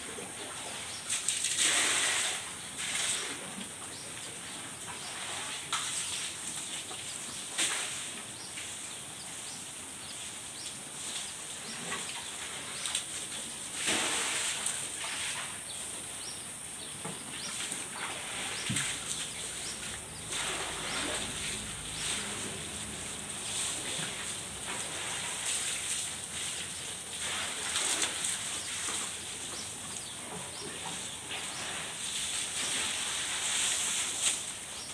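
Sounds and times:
cows tearing and chewing grass: 16.2 - 34.9.

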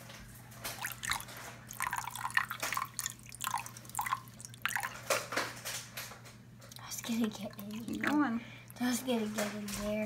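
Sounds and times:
whisk splashing in liquid: 0.7 - 5.4.

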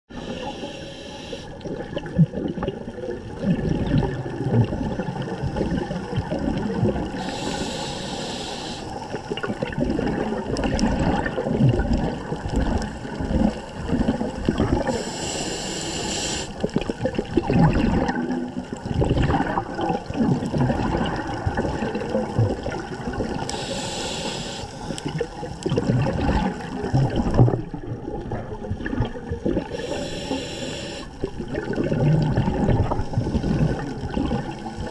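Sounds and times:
regulator hissing inhalations: 0.1 - 1.6, 7.2 - 9.1, 14.9 - 16.6, 23.5 - 25.1, 29.7 - 31.2
gurgling exhaled bubbles: 1.6 - 8.2, 8.9 - 15.4, 16.5 - 34.9.

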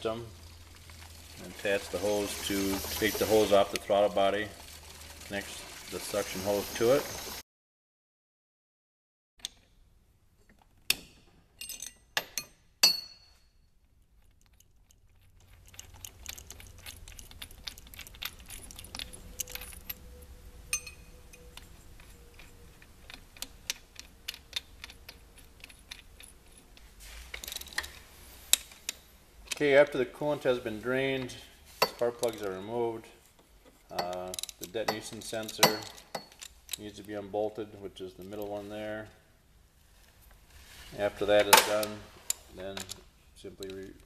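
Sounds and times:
small clinks and rattles: 11.6 - 29.7, 31.3 - 37.2.

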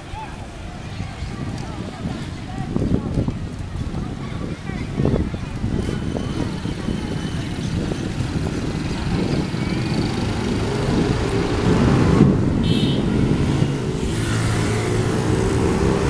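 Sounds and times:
vehicle engine accelerating: 7.4 - 16.0.

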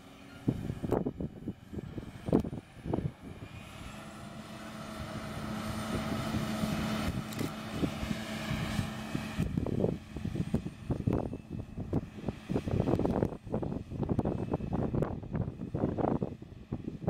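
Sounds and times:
harvester machine drone: 0.0 - 17.0
wind buffeting microphone: 0.4 - 17.0.

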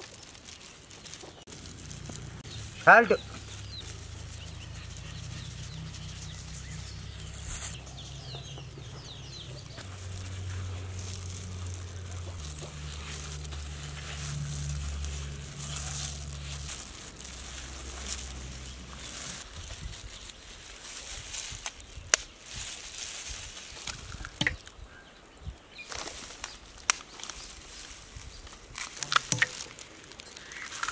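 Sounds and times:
gloved hand rustling flour: 0.0 - 24.3
birds chirping: 0.6 - 20.8.

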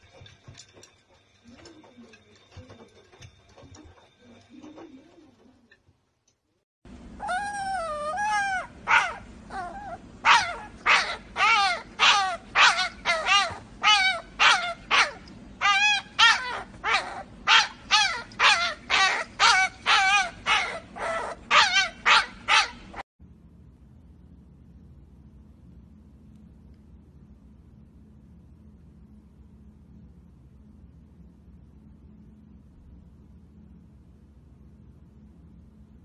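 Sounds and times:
puppy howling: 7.2 - 23.0
puppy yapping: 7.2 - 23.0.

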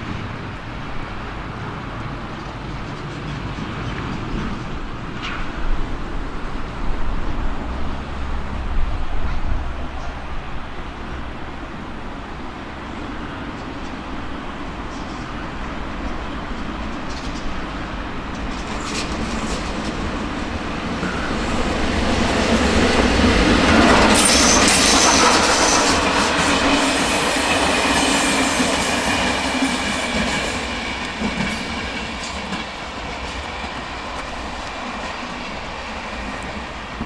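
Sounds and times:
train passing: 0.0 - 37.0
high wheel squeal: 23.9 - 26.2.

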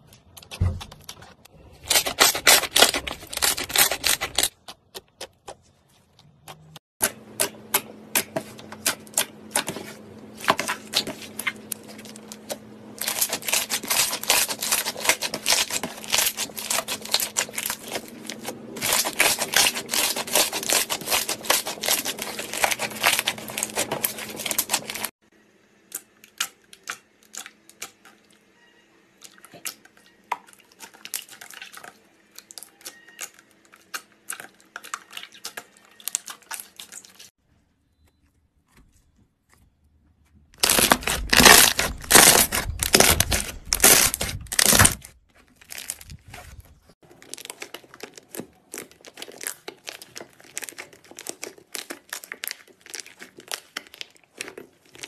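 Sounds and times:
hands squishing slime: 47.1 - 55.0.

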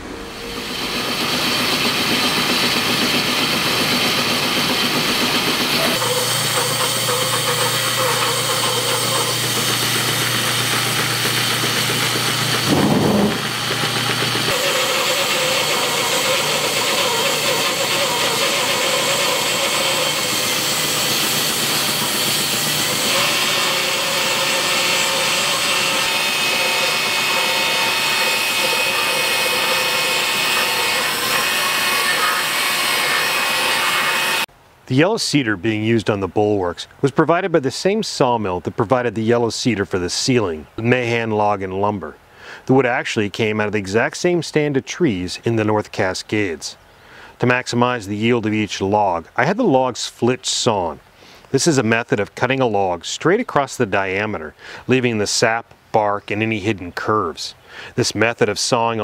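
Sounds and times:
bandsaw cutting wood: 0.6 - 34.5.

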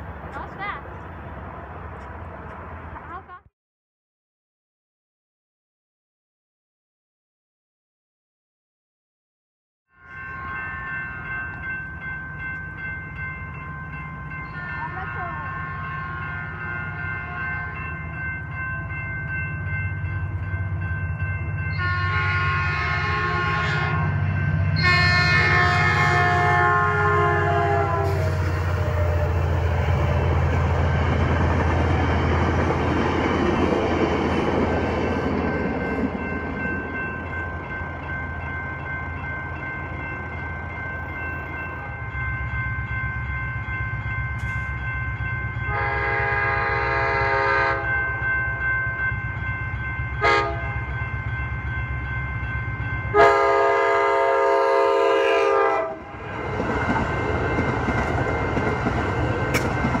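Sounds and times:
train rumbling: 0.0 - 3.4, 10.0 - 60.0
crossing bell ringing: 9.9 - 60.0
train horn blasts: 14.5 - 17.8, 21.7 - 24.2, 24.8 - 29.9, 45.7 - 48.0, 50.2 - 50.8, 53.1 - 56.2.

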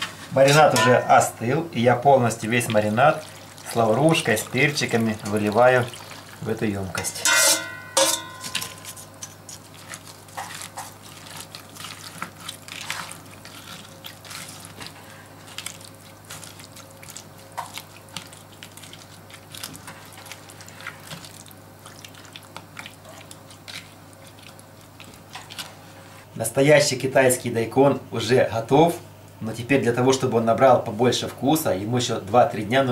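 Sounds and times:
wet squelching and splashing: 2.6 - 6.6, 9.4 - 25.8.

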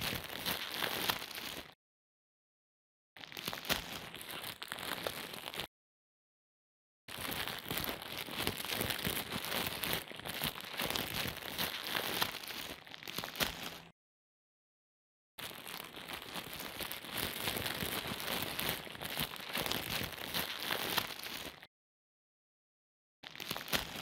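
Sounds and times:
crinkling crackling: 0.0 - 1.8, 3.2 - 5.7, 7.1 - 13.9, 15.4 - 21.7, 23.2 - 24.0.

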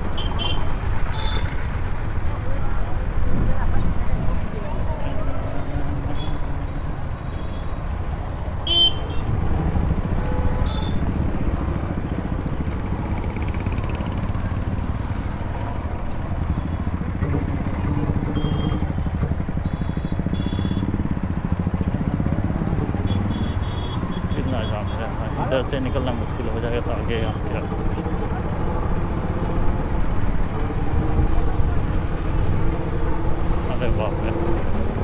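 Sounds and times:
vehicle horn beeps: 0.2 - 1.6, 8.6 - 9.3, 10.3 - 11.0, 18.3 - 18.9, 19.6 - 20.9, 22.6 - 25.0
motorcycle engine running: 8.7 - 24.4.

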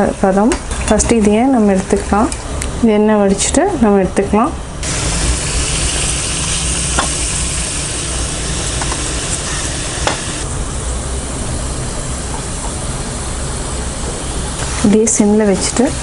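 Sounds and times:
hot oil sizzling: 4.8 - 16.0.

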